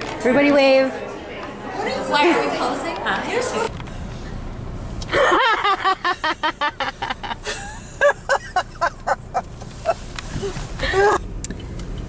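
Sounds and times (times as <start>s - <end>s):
woman laughing: 5.1s - 11.3s.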